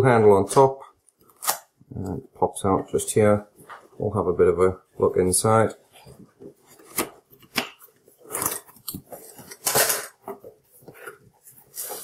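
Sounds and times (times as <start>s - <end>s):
cardboard packaging rustling: 6.0s - 12.0s.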